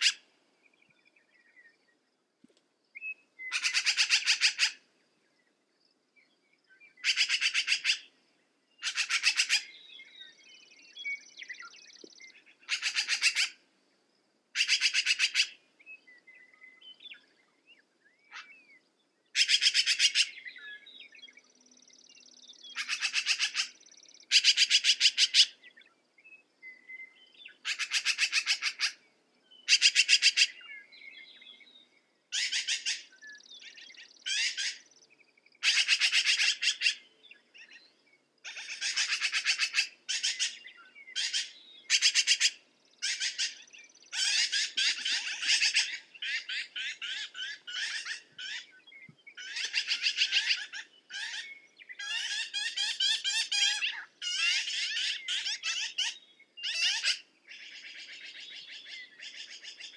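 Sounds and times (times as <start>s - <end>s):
faint bird chirps: 0.0s - 59.9s
magpie chattering: 12.7s - 13.5s.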